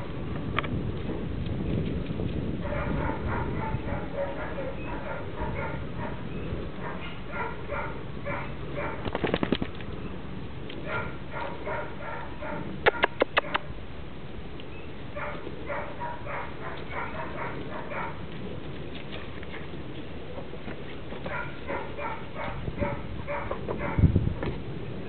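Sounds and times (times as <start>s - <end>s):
puppies squeaking and yipping: 2.8s - 9.0s
sharp clicks: 12.8s - 13.7s.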